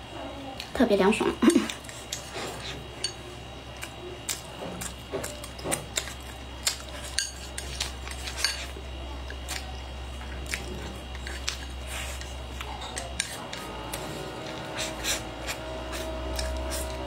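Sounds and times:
low steady hum: 0.0 - 17.0
chewing food: 1.6 - 17.0
chopsticks clicking against bowl: 3.8 - 8.6.

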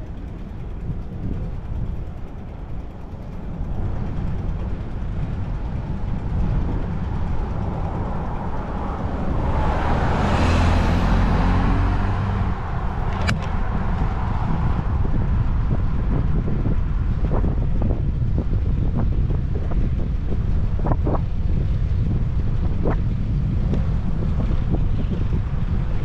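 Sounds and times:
wind rumble on microphone: 0.0 - 26.0
car passing by: 7.5 - 15.2
sharp click: 13.1 - 13.6.

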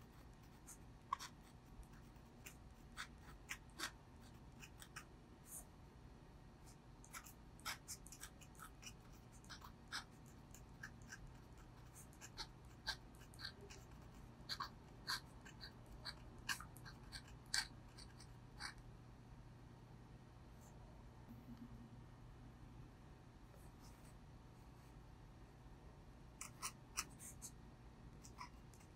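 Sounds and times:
pen nib scratching paper: 0.0 - 5.7, 6.7 - 18.8, 26.4 - 27.6.

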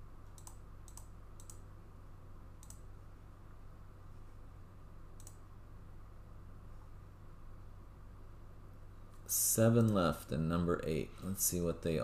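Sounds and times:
low electrical hum: 0.0 - 12.0
computer mouse clicks: 0.2 - 1.7, 2.6 - 2.9, 5.2 - 5.5, 9.1 - 10.0.

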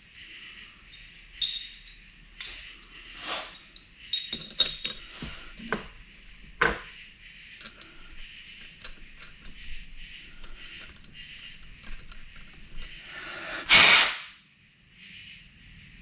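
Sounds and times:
metal clinks and knocks: 0.8 - 13.0.

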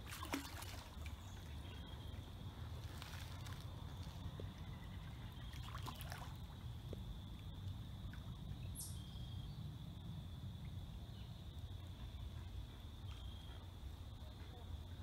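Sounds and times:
fish splashing in water: 0.0 - 1.6, 5.4 - 6.7
steady low rumble: 6.2 - 15.0.

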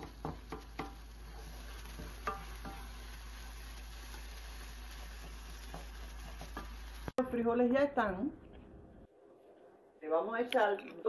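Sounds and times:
rice sizzling in oil: 0.0 - 7.2
wooden spoon stirring and scraping: 4.6 - 7.1.

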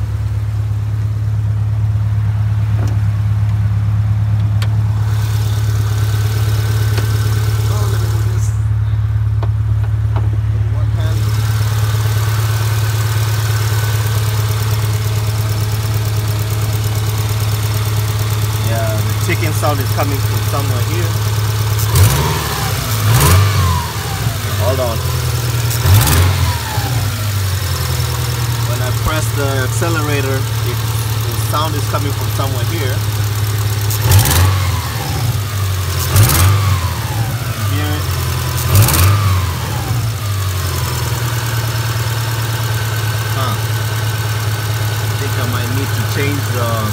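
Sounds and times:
car engine idling with ticking: 0.0 - 46.9.

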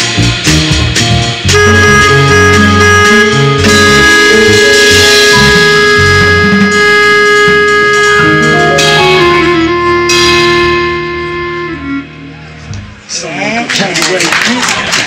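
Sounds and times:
trumpet: 0.0 - 12.6
drums: 0.0 - 13.2
electric bass: 0.0 - 13.3
keyboard: 0.0 - 14.0
clarinet: 1.5 - 12.8.

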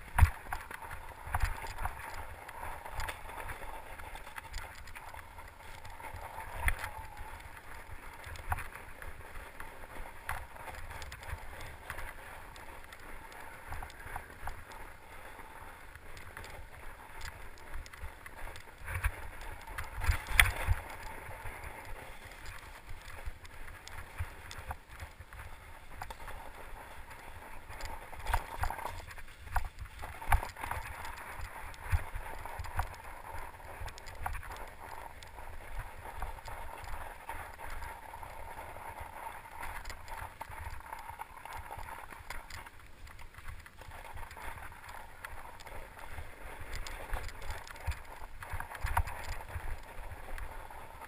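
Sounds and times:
wind rumble on microphone: 0.0 - 51.0
tyres rolling over snow: 0.1 - 51.0.

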